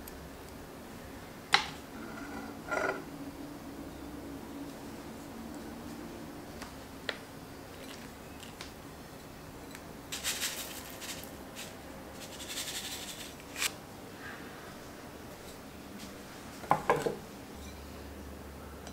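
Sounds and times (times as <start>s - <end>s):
seeds sprinkled over rice: 10.1s - 13.7s.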